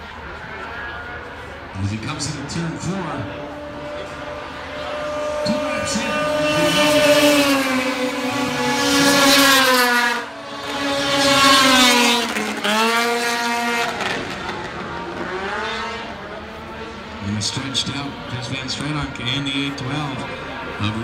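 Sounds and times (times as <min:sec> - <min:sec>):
snowmobiles racing past: 0:02.5 - 0:17.3.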